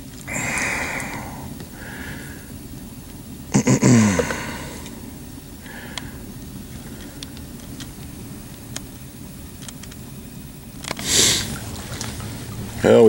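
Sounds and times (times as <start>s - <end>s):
steady low rumble: 0.0s - 10.8s
faint clicks: 5.6s - 6.2s.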